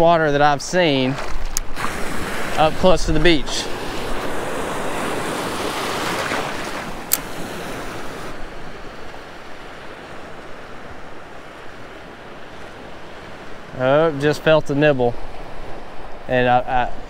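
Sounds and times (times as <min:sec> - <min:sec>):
small wave breaking in surf: 0:01.2 - 0:13.4
sharp click: 0:07.1 - 0:07.3.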